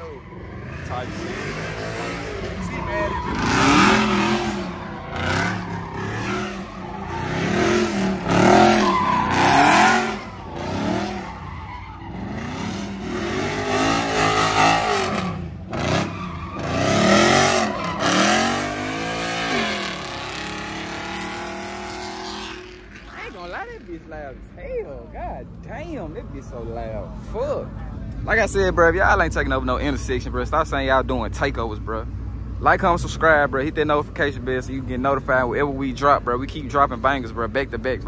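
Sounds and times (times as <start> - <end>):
tyres squealing and skidding: 0.0 - 25.1
car engines revving: 0.0 - 38.0.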